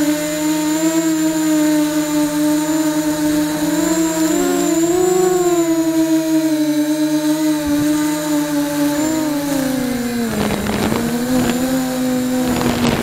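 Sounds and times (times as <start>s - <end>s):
drone propellers whining: 0.0s - 13.0s
wind rushing on microphone: 7.5s - 13.0s.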